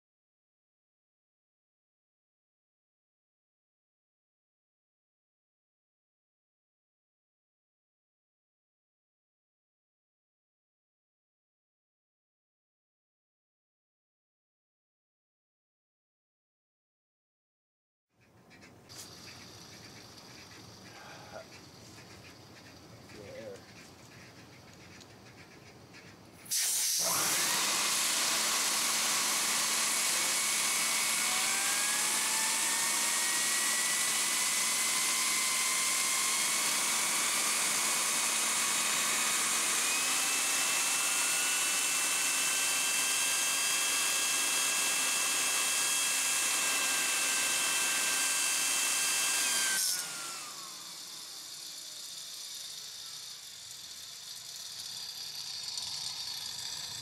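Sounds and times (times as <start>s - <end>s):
compressed air hissing: 18.9s - 21.5s, 26.4s - 27.1s
turbine rotor whine: 27.0s - 57.0s.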